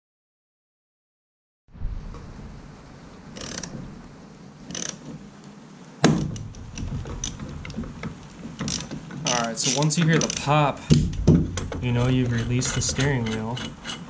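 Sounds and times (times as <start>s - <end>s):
loud sharp pop: 6.0s - 6.6s
hand ratchet clicking: 8.6s - 11.0s, 11.6s - 14.0s.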